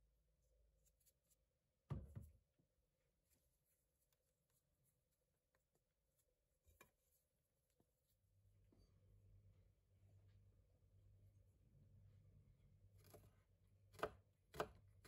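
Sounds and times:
dull thump: 1.9s - 2.3s.

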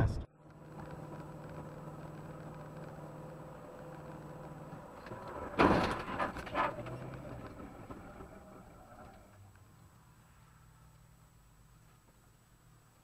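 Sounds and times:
road noise: 0.0s - 13.0s
car crash: 5.0s - 9.3s.

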